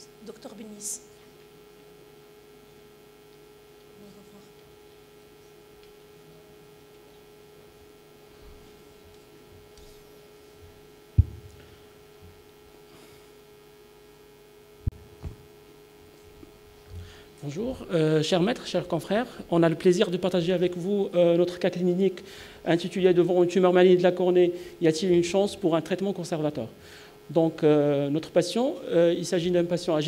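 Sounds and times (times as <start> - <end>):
steady electrical hum: 0.0 - 30.0
knocks on microphone: 11.2 - 11.6, 14.9 - 15.5.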